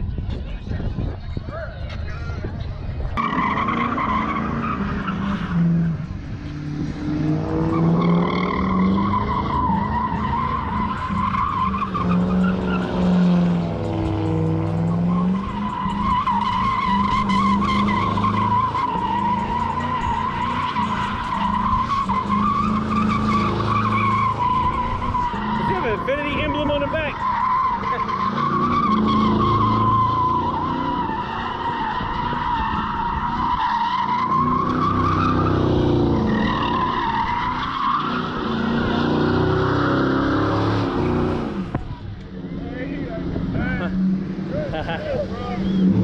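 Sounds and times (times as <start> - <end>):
tires squealing: 1.8 - 46.0
car engine revving high: 3.2 - 46.0.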